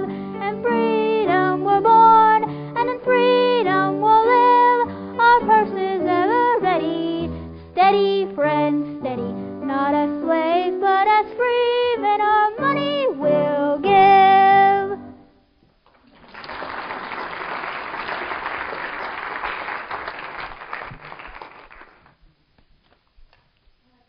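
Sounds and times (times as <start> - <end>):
girl singing: 0.0 - 15.2
piano accompaniment: 0.0 - 15.2
audience clapping: 15.9 - 22.2.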